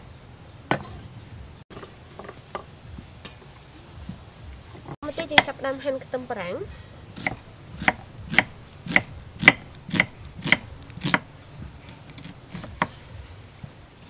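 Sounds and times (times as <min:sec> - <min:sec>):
knife slicing onion on wooden board: 0:07.2 - 0:13.0.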